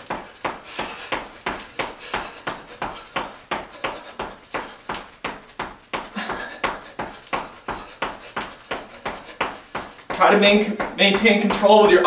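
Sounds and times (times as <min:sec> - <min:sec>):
sneakers running in place on floor: 0:00.0 - 0:12.0.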